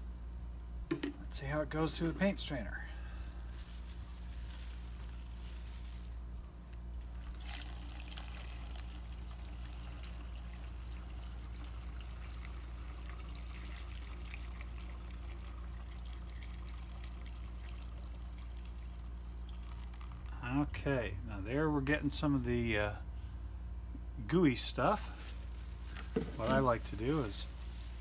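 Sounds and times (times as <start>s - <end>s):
low steady hum: 0.0s - 28.0s
brief knock: 0.9s - 1.2s
liquid trickling into glass jar: 7.1s - 20.4s.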